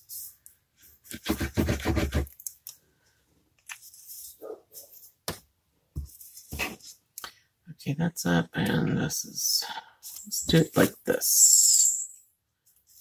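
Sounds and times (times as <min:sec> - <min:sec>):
glue applicator scratching cardstock: 0:01.1 - 0:02.4.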